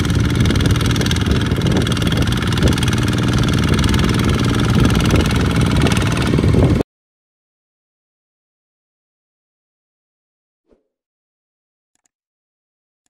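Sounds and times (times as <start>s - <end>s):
diesel tractor engine running: 0.0s - 6.8s.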